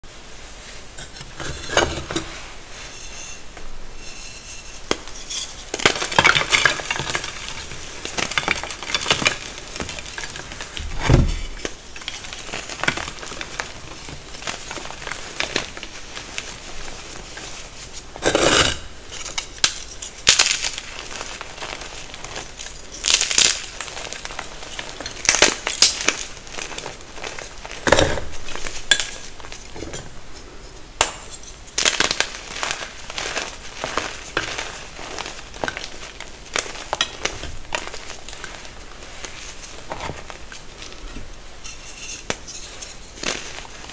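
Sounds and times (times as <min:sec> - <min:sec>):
chalk crumbling by hand: 0:04.1 - 0:43.9
chalk crunching and snapping: 0:31.1 - 0:41.0.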